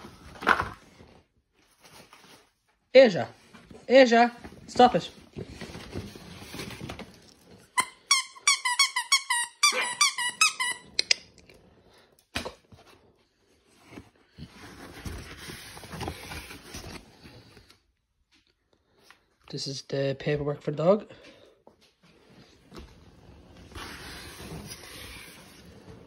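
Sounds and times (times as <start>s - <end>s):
dog toy squeaking: 7.8s - 11.2s.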